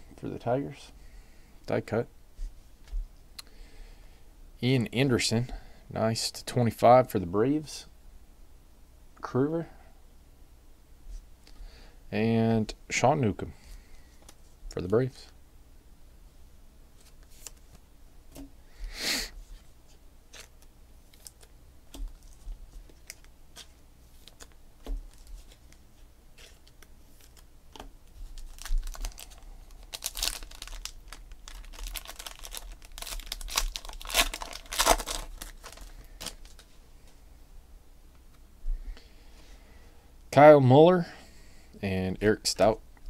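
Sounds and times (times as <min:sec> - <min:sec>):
cards clicking and rustling: 0:20.3 - 0:25.8
wrapper tearing and crinkling: 0:28.3 - 0:36.7.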